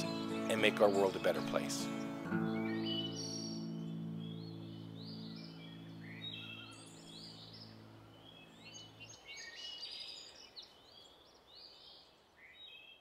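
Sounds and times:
low music chord: 0:00.0 - 0:08.7
birds chirping and calling: 0:00.0 - 0:13.0.

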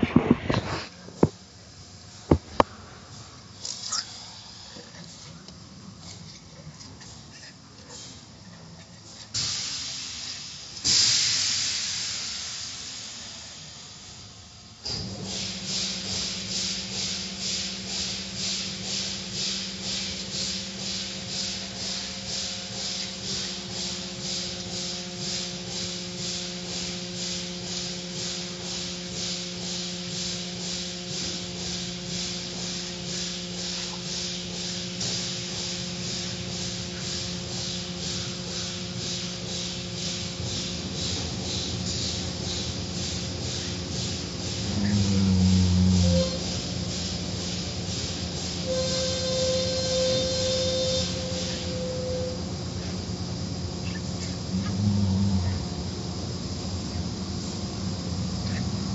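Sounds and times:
hissing water spray: 0:09.2 - 0:13.7.

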